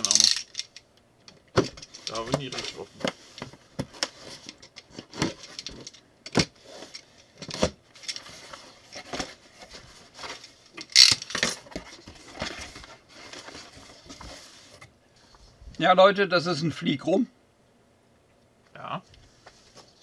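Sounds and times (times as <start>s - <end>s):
cardboard scrape: 11.7s - 14.8s.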